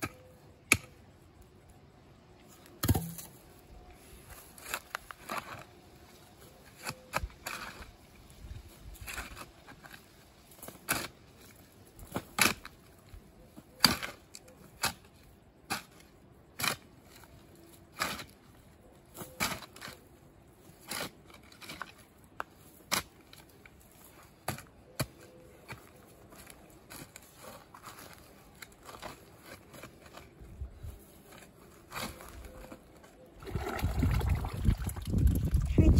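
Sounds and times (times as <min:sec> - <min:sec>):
shovel chopping into rooty soil: 0:13.8 - 0:16.9.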